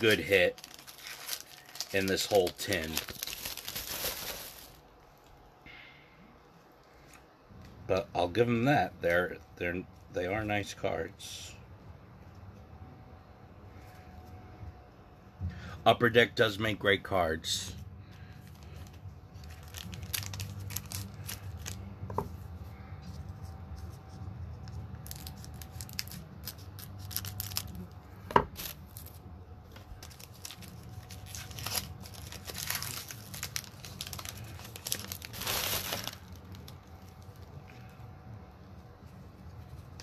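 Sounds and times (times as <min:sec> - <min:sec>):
foil wrapper crinkling and tearing: 0:00.0 - 0:05.4, 0:18.2 - 0:21.9, 0:23.8 - 0:38.0.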